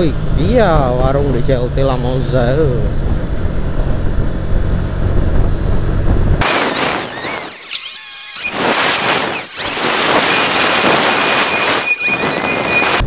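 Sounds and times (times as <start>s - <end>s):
motorcycle engine rumble: 0.0s - 6.6s
wind on microphone: 2.9s - 13.0s.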